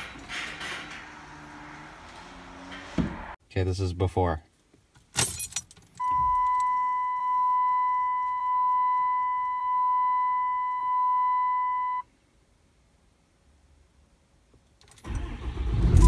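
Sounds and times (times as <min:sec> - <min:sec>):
dashboard warning chime beeping: 0:06.0 - 0:12.1.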